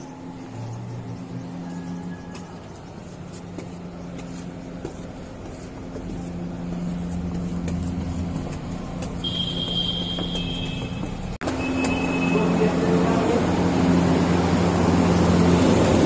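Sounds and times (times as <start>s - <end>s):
road noise: 0.0s - 16.0s
high steady tone: 9.2s - 13.1s.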